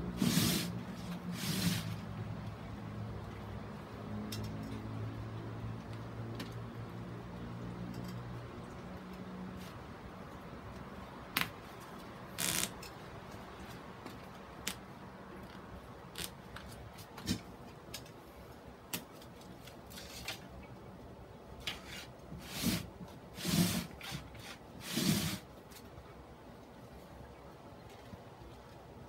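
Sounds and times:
board scraping rustles: 0:00.0 - 0:02.0, 0:21.6 - 0:25.5
small clicks and rustles: 0:07.6 - 0:20.9, 0:27.8 - 0:28.9.

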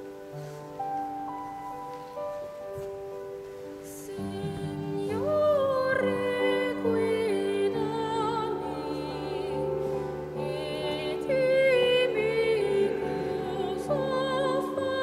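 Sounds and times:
woman singing classical style: 0:03.8 - 0:15.0.

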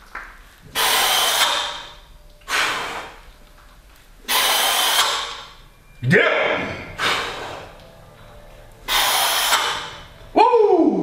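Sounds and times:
heavy forceful breaths: 0:06.8 - 0:07.8, 0:08.8 - 0:10.2.

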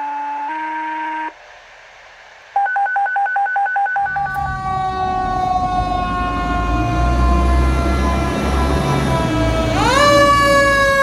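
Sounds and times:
fire engine siren: 0:00.0 - 0:01.3, 0:04.0 - 0:11.0
electronic beeps: 0:02.6 - 0:04.4
engine rumble: 0:04.1 - 0:11.0.

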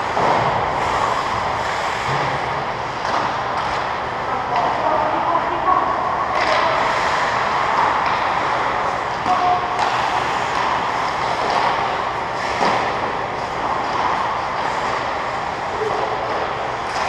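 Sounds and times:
skates hissing on ice: 0:00.1 - 0:02.5, 0:06.7 - 0:09.0, 0:09.8 - 0:15.8.

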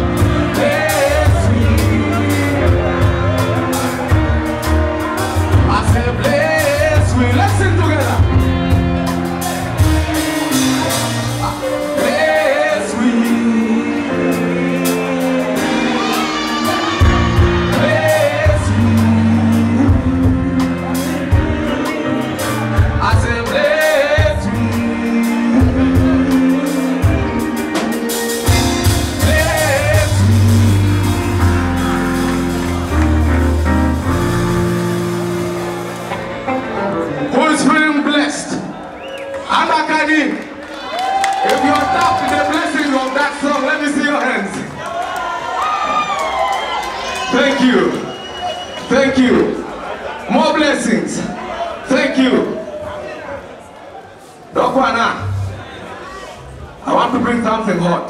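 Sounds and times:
man singing: 0:00.0 - 0:09.1, 0:10.0 - 0:28.0, 0:28.8 - 0:31.2
bass line: 0:00.0 - 0:37.4
drum beat: 0:16.1 - 0:24.6.

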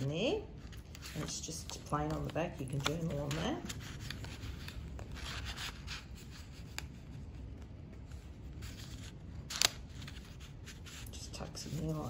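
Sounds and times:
paper rustling and sliding: 0:00.6 - 0:07.2, 0:08.0 - 0:12.0.

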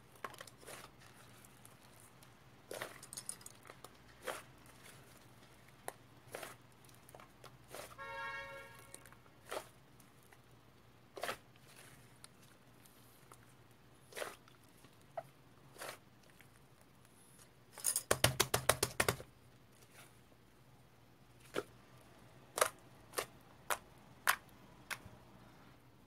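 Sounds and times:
wet slime squishes: 0:00.1 - 0:08.0, 0:08.8 - 0:10.5, 0:11.1 - 0:17.0, 0:22.5 - 0:25.1.

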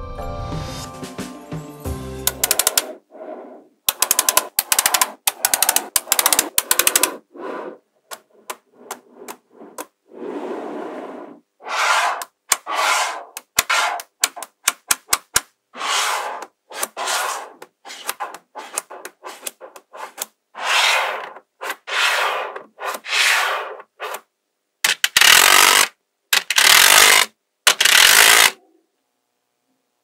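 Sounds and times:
magnetic balls clicking: 0:02.3 - 0:03.0, 0:03.9 - 0:07.2, 0:13.3 - 0:15.5, 0:17.6 - 0:20.3
magnetic balls rattling: 0:03.9 - 0:09.9.

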